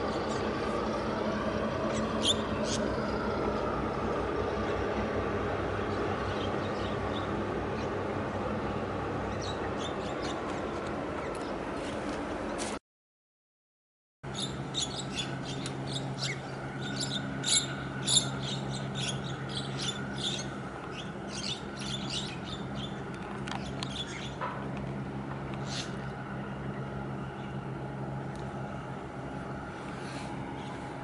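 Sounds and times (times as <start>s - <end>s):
low hum of ship engines: 0.0s - 12.8s, 14.2s - 31.0s
small birds chirping: 0.1s - 3.6s, 14.3s - 24.4s, 25.6s - 27.6s.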